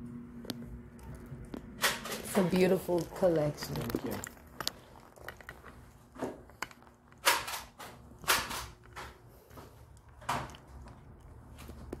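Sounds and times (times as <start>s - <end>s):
footsteps on tile floor: 8.9s - 10.2s.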